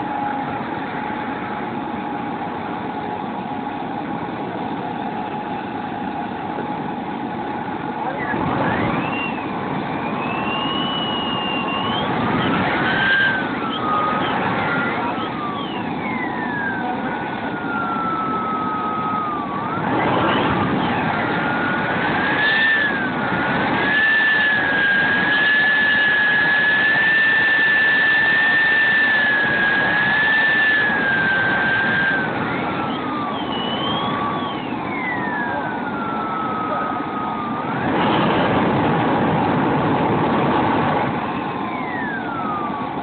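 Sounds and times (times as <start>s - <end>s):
broad rushing noise: 0.0s - 43.0s
jet turbine engines whining: 0.0s - 43.0s.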